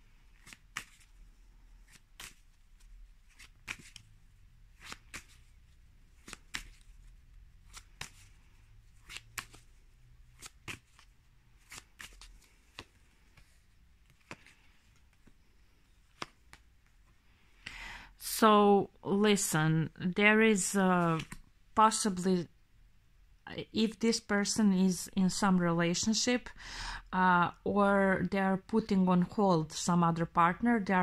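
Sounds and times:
cards being shuffled: 0:00.3 - 0:01.2, 0:01.8 - 0:17.1, 0:21.0 - 0:21.5.

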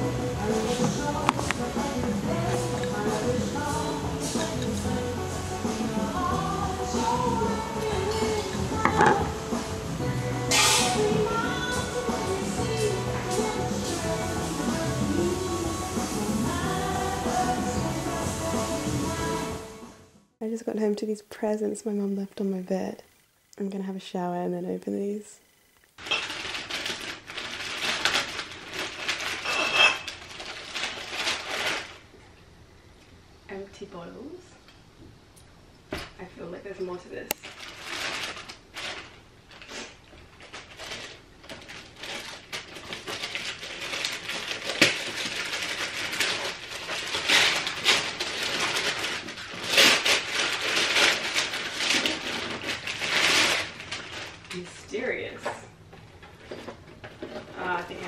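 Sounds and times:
plastic bag crinkling: 0:00.0 - 0:01.8, 0:26.0 - 0:32.1, 0:37.3 - 0:55.1
paper tearing and crumpling: 0:26.0 - 0:32.1, 0:37.4 - 0:54.8
glass clink: 0:29.5 - 0:30.0.

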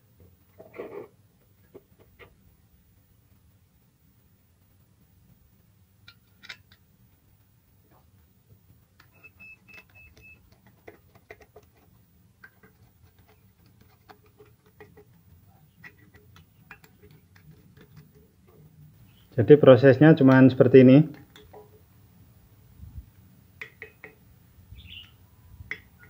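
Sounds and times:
quiet high beeps: 0:09.0 - 0:10.6.

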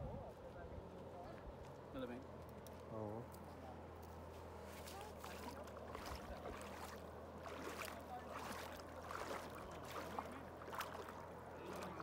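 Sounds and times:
faint voices: 0:02.8 - 0:12.0
water splashing and trickling: 0:04.7 - 0:12.0.

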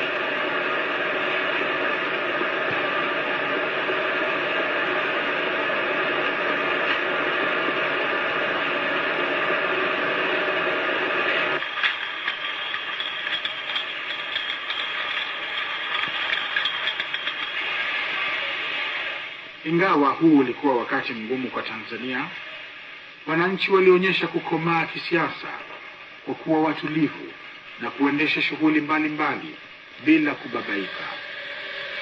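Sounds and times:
machinery humming and whirring: 0:00.0 - 0:32.0
rapid mechanical clicking: 0:11.6 - 0:17.7.

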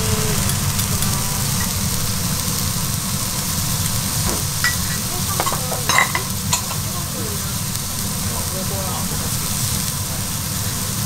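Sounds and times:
butter sizzling on a griddle: 0:00.0 - 0:11.0
tongs clicking and scraping: 0:00.4 - 0:02.6, 0:04.1 - 0:07.0.

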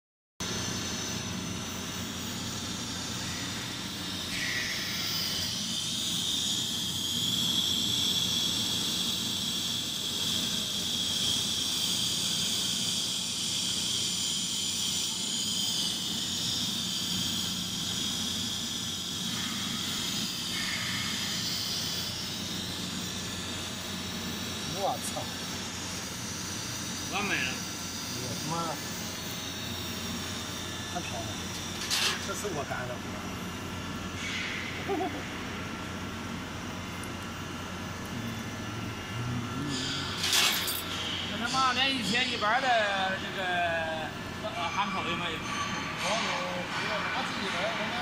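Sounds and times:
welding arc hissing: 0:00.4 - 0:45.4
high steady whine: 0:00.4 - 0:47.9
low machine hum: 0:00.4 - 0:48.0.

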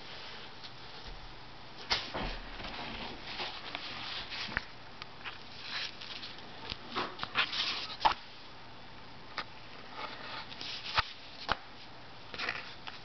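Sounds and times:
paper comic books rustling: 0:01.8 - 0:08.3, 0:09.8 - 0:13.0.

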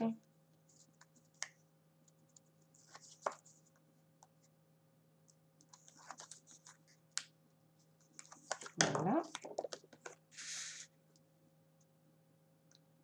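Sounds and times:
paper rustling and scraping: 0:05.7 - 0:07.0.

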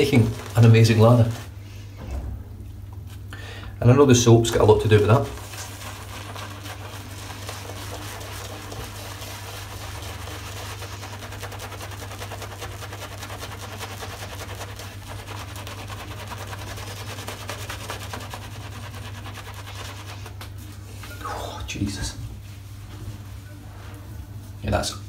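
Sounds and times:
shaving brush scrubbing lather: 0:00.0 - 0:01.6, 0:04.5 - 0:20.7
steady low hum: 0:00.0 - 0:25.0.

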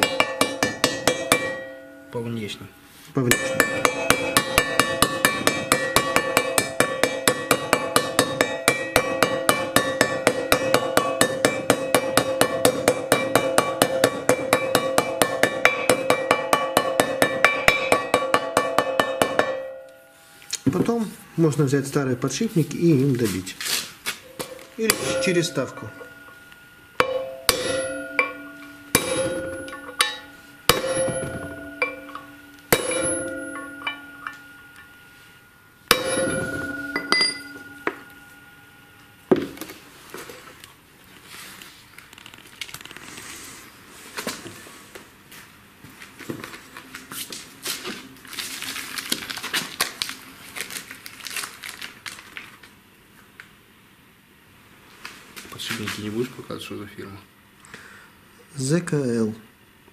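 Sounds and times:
hammer ringing on steel: 0:00.0 - 0:02.3, 0:03.2 - 0:20.2, 0:24.5 - 0:39.6
handling and rustling: 0:39.4 - 0:52.7.

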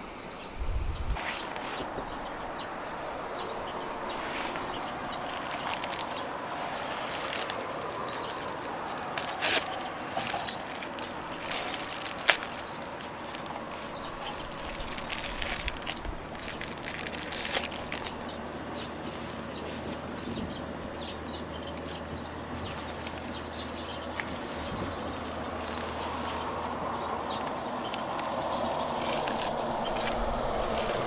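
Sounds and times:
steady background hiss: 0:00.0 - 0:31.0
plastic wrapper crinkling and tearing: 0:04.2 - 0:20.1, 0:27.7 - 0:31.0.

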